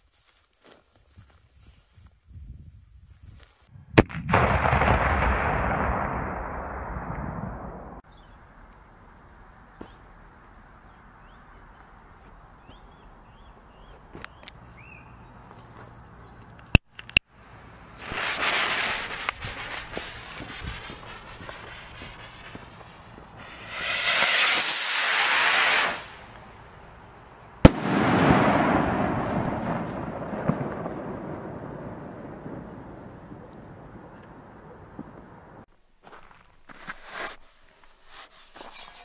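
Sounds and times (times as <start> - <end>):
firework bang with rolling echo: 4.0 - 8.0, 23.4 - 26.3, 27.6 - 33.1
sharp clicks: 16.5 - 17.3
firework rocket hissing: 18.0 - 26.4.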